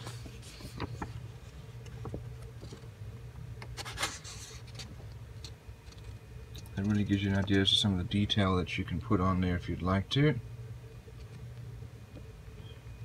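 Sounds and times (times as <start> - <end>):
paper booklet rustling: 0.0 - 2.9, 3.8 - 4.9
paper crinkles: 0.0 - 2.9, 3.8 - 5.0
steady low hum: 0.0 - 13.0.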